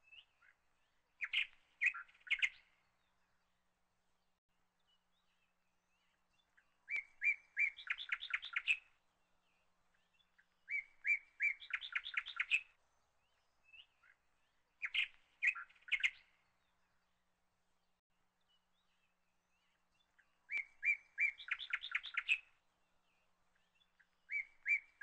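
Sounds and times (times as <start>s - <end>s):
bird singing with trills: 1.2s - 2.8s, 4.8s - 8.9s, 10.0s - 14.2s, 14.8s - 16.7s, 18.4s - 22.6s, 23.6s - 25.0s.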